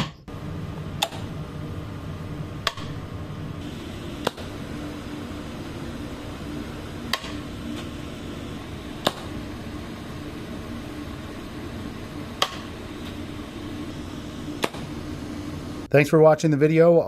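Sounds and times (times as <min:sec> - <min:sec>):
low hum: 0:00.0 - 0:16.1
torch flame hissing: 0:03.0 - 0:15.9.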